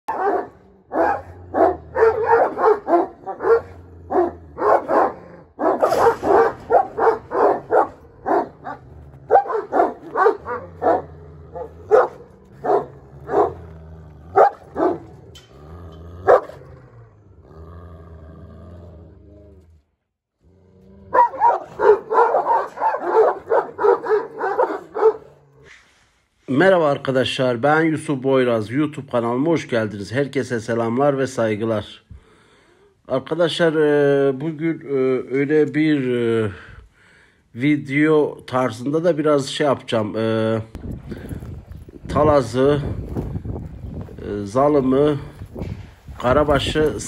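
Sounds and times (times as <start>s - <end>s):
dogs barking: 0.1s - 16.8s, 21.1s - 25.5s.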